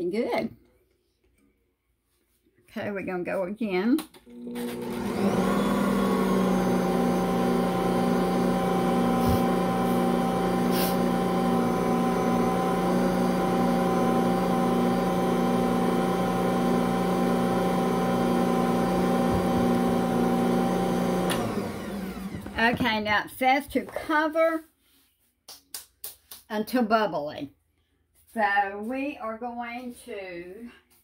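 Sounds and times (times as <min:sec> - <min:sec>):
stand mixer motor humming: 0:04.3 - 0:22.8.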